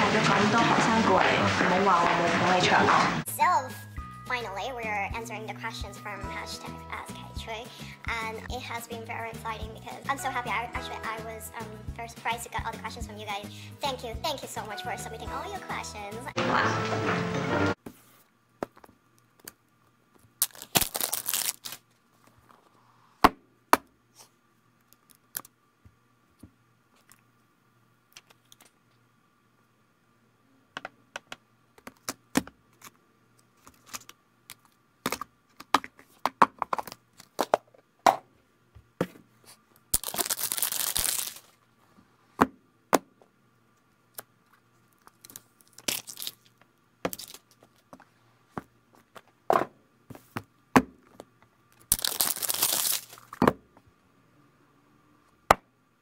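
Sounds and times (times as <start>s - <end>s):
packaging rustling open: 20.4s - 22.0s, 33.6s - 35.7s, 39.9s - 41.6s, 44.9s - 47.9s, 51.8s - 53.4s.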